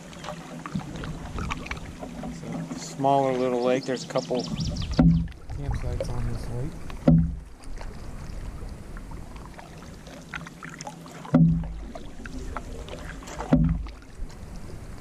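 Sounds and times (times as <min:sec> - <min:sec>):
paddle water swishing and dripping: 0:00.0 - 0:15.0
dull thumps through canoe: 0:04.4 - 0:08.0, 0:11.1 - 0:14.5.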